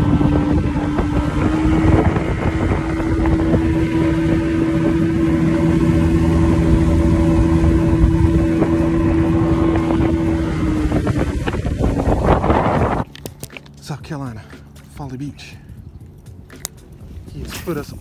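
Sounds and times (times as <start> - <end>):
hull and water rumble: 0.0 - 18.0
motorboat engine droning: 0.0 - 18.0.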